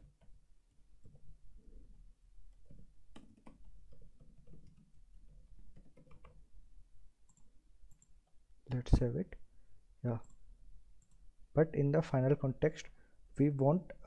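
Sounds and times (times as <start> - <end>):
computer keyboard typing: 2.6 - 6.5.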